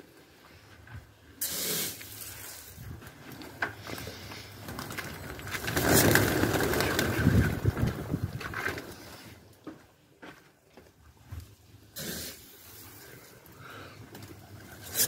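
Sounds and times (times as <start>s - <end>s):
brief hiss: 1.4s - 2.8s, 12.0s - 13.0s
pigeon wings flapping: 3.9s - 9.0s.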